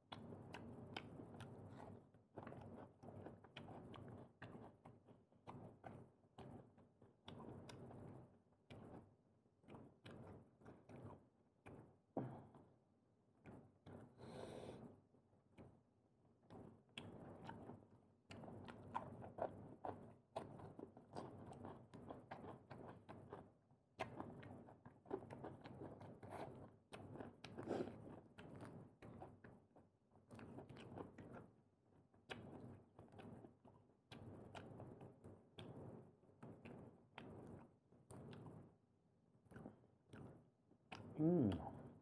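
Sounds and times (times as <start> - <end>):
wet chewing and biting: 0.1 - 6.6, 16.5 - 29.6, 30.2 - 31.5, 32.2 - 38.6, 39.4 - 41.8.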